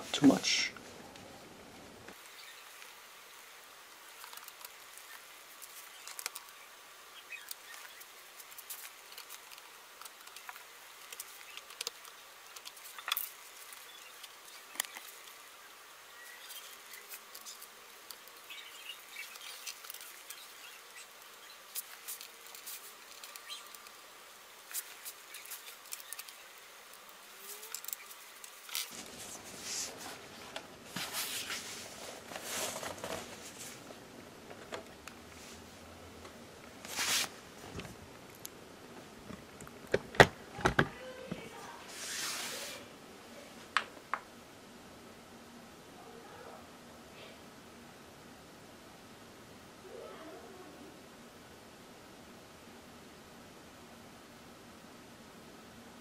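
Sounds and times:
laptop being handled: 28.7s - 35.0s.

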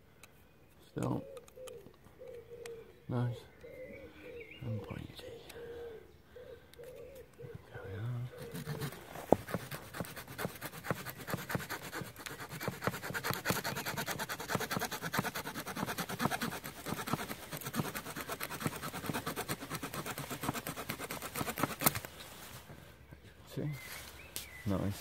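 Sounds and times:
saw cutting a branch: 8.3s - 22.2s
branch snapping: 21.6s - 22.2s.

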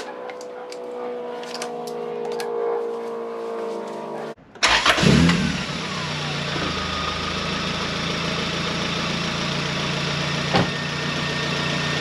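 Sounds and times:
starter cranking engine: 4.6s - 5.7s
engine idling: 4.6s - 12.0s.

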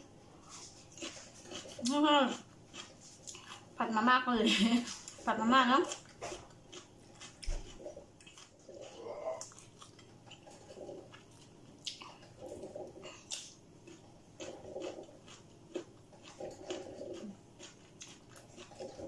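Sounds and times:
chewing with wet mouth clicks: 0.9s - 3.7s, 5.8s - 19.0s.

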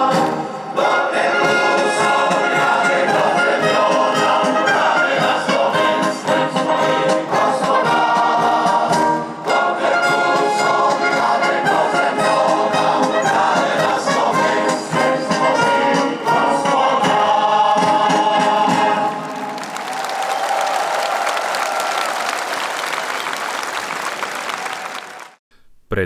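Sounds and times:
choir singing: 0.0s - 19.6s
orchestra playing: 0.0s - 19.7s
brass instruments: 0.0s - 25.4s.

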